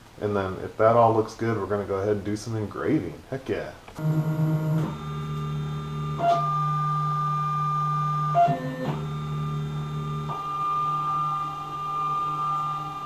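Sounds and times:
mill stepper motors whining: 4.0 - 13.0.

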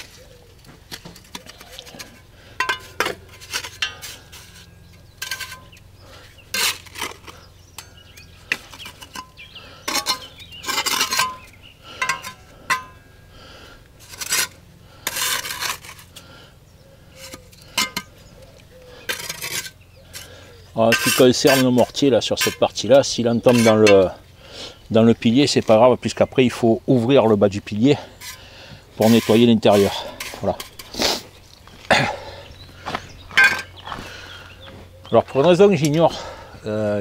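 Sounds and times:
trowel scraping concrete blocks: 0.0 - 13.1, 14.0 - 16.5, 17.1 - 26.6, 27.4 - 34.3.

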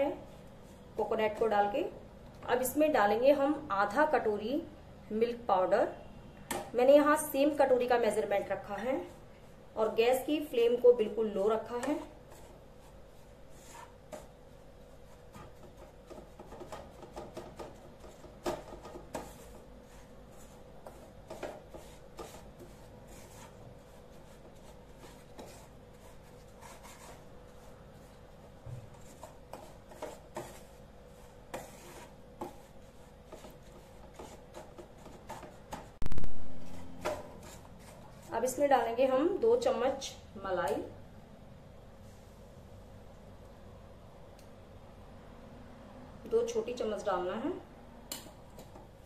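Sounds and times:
spatula scraping pan: 29.0 - 36.0.

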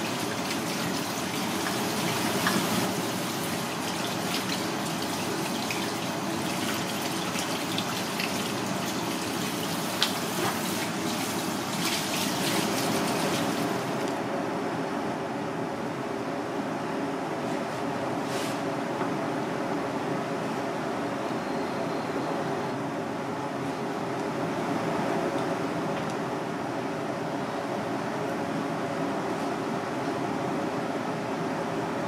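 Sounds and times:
water running from faucet: 0.0 - 14.0.

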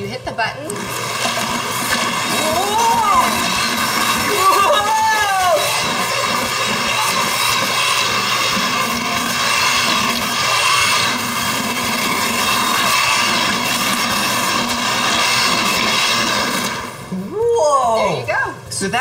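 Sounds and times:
immersion blender motor whirring: 0.0 - 18.2.

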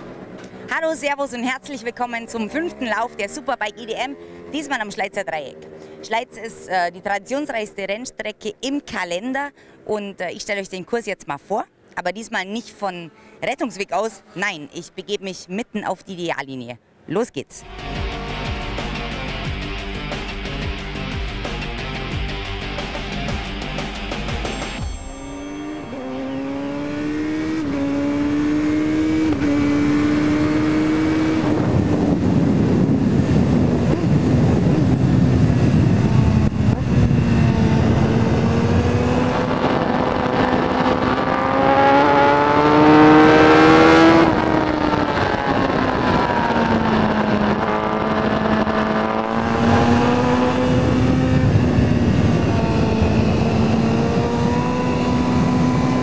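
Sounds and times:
motorcycle engine revving through gears: 17.6 - 22.0, 25.9 - 56.0.

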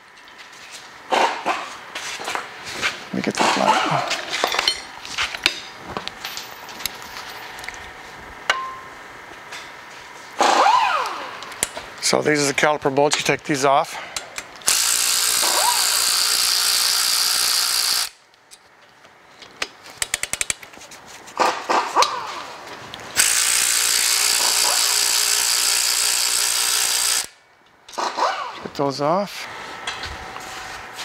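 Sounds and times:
cordless power wrench spinning: 10.4 - 11.6, 14.6 - 18.2, 23.2 - 28.6.

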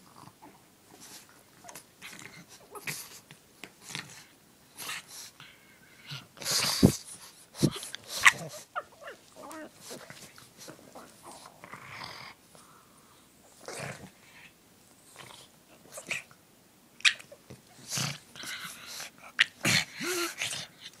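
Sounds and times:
dogs breathing and snuffling: 0.0 - 16.4, 17.2 - 21.0
dog whining: 8.2 - 10.0.

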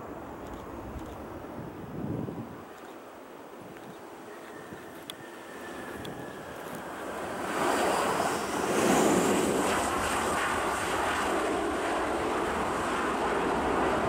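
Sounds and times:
high engine whine: 4.2 - 14.0
jet engines roaring: 4.7 - 14.0.

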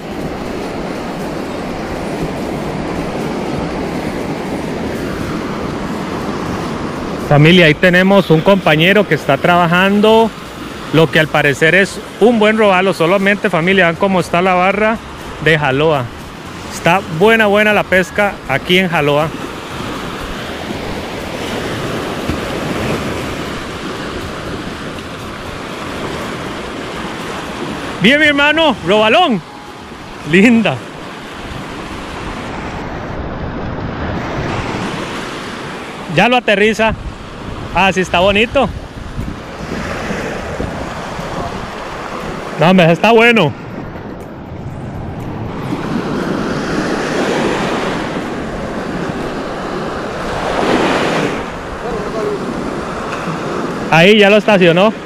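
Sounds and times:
wind buffeting microphone: 0.0 - 7.4, 36.8 - 42.6, 43.4 - 53.9
ocean surf breaking: 0.0 - 55.0.

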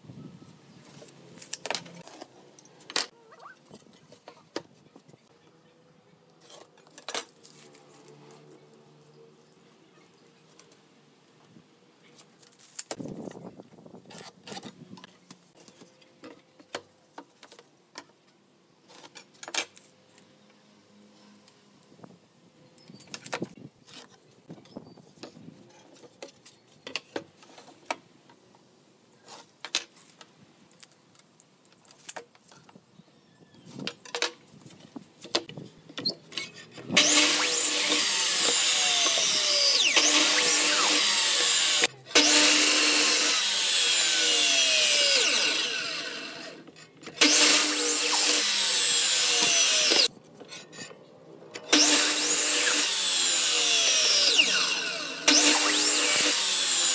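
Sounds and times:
mitre saw cutting boards: 36.4 - 50.1, 51.7 - 56.9.

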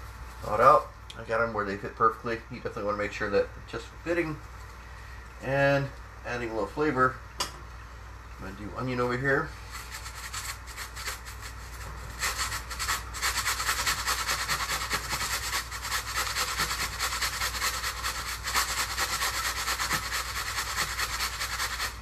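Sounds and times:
onion grating on metal grater: 9.6 - 22.0.

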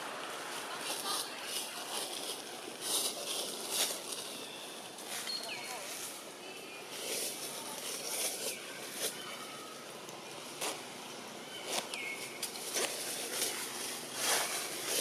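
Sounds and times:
high chirping calls: 3.7 - 7.1, 11.4 - 15.0.

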